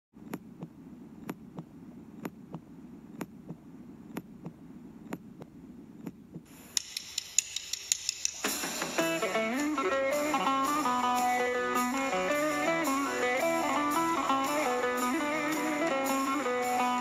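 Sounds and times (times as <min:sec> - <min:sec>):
heartbeat double beat: 0:00.2 - 0:06.5
shimmering hiss with sharp ticks: 0:06.6 - 0:09.8
song: 0:08.6 - 0:17.0.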